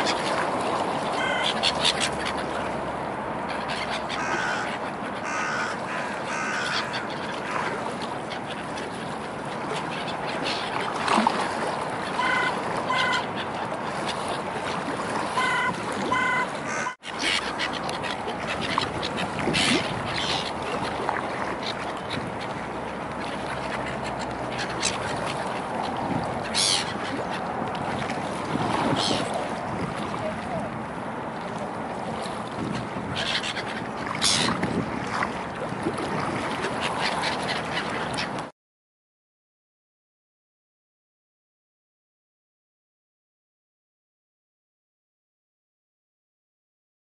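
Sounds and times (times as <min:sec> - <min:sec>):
waterside background noise: 0:00.0 - 0:38.5
gulls giving harsh calls: 0:01.1 - 0:02.6, 0:03.5 - 0:07.7, 0:12.1 - 0:13.6, 0:15.3 - 0:20.6, 0:26.4 - 0:27.5, 0:33.1 - 0:34.6.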